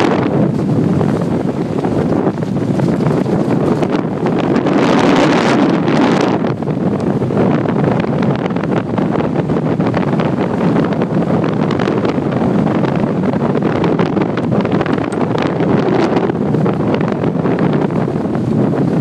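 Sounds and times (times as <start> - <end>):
skis scraping over snow: 0.0 - 6.6
wind rushing over microphone: 0.0 - 19.0.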